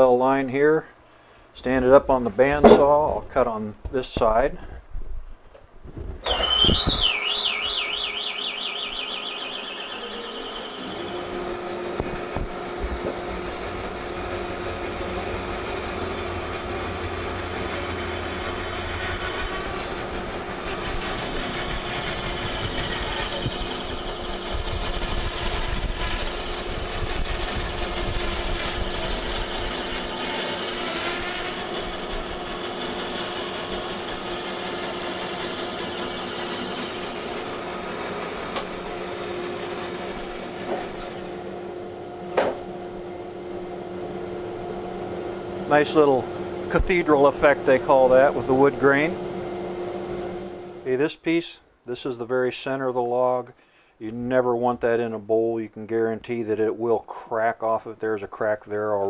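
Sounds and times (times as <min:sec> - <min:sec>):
saw blade ripping through log: 0:06.2 - 0:41.4
bandsaw motor squeal: 0:06.2 - 0:41.7
bandsaw humming: 0:06.2 - 0:51.0.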